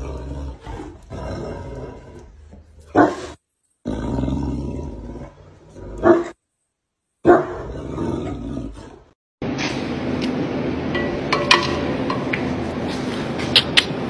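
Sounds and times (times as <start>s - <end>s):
dog growling: 0.0s - 6.4s, 7.4s - 9.2s.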